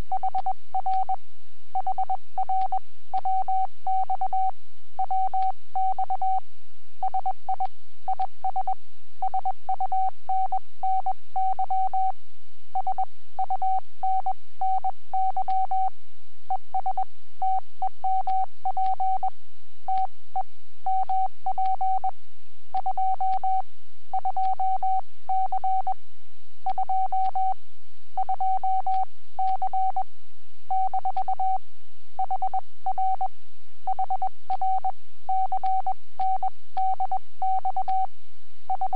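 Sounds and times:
faint low hum: 0:00.0 - 0:38.9
morse code tone: 0:26.6 - 0:27.6, 0:30.7 - 0:31.6, 0:33.9 - 0:38.1, 0:38.7 - 0:38.9.

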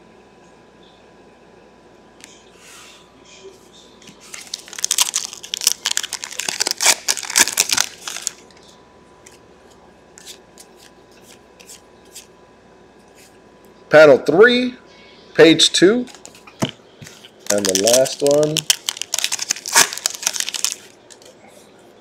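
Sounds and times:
foil wrapper crinkling: 0:04.2 - 0:08.7, 0:16.1 - 0:21.3.

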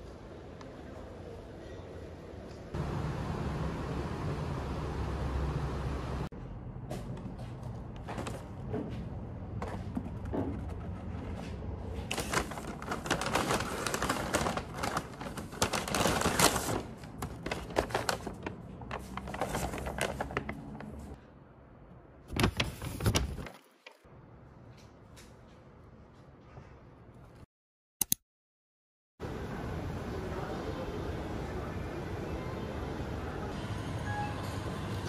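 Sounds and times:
paper bags rustling and crinkling: 0:11.8 - 0:21.2, 0:22.3 - 0:24.0.

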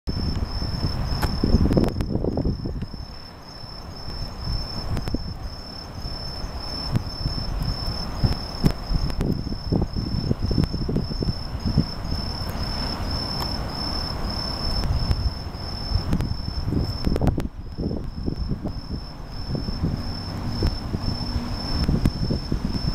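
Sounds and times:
bell crickets chirping: 0:00.1 - 0:22.9.

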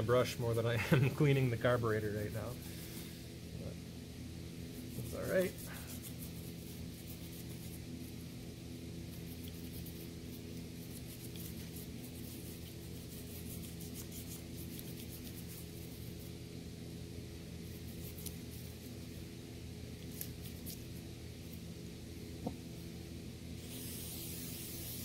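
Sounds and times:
steady low hum: 0:00.0 - 0:25.0
brush scrubbing metal: 0:04.8 - 0:07.9, 0:09.1 - 0:16.4.

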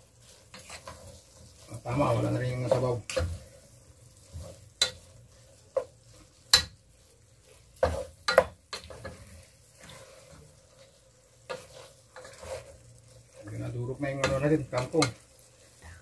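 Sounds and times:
food sizzling faintly: 0:00.0 - 0:16.0
wooden spatula knocking and scraping wok: 0:00.0 - 0:16.0.

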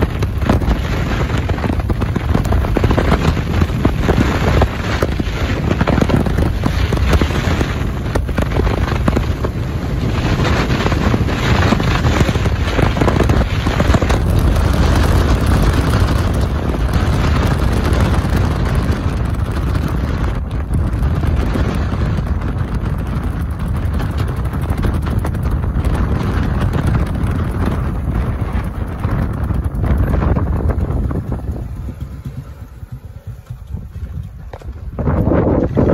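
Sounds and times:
exhaust cracks: 0:00.0 - 0:35.9
motorcycle engine with loud exhaust: 0:00.0 - 0:35.9
wind buffeting microphone: 0:00.0 - 0:35.9.

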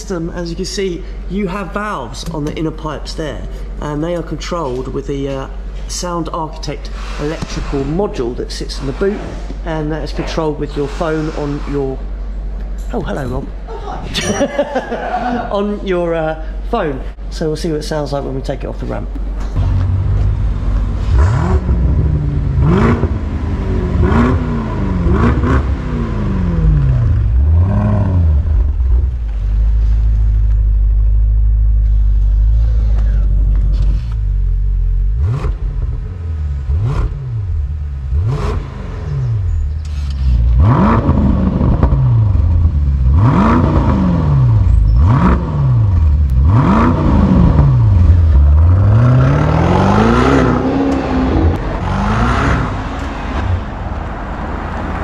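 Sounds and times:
car engine idling: 0:00.0 - 0:13.7, 0:14.4 - 0:55.0
car engine revving: 0:19.3 - 0:55.0.

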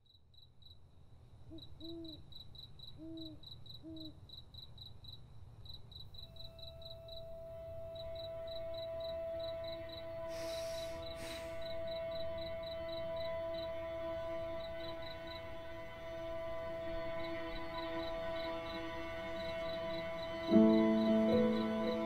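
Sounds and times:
crickets chirping: 0:00.0 - 0:22.0
owl hooting: 0:01.5 - 0:02.2, 0:03.0 - 0:04.2, 0:09.7 - 0:13.1
sustained music note: 0:06.3 - 0:11.0, 0:11.7 - 0:22.0.

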